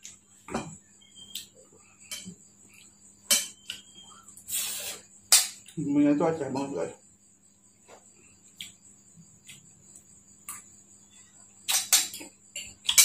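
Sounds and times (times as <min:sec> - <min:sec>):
cutlery clattering on plate: 0:03.3 - 0:03.6.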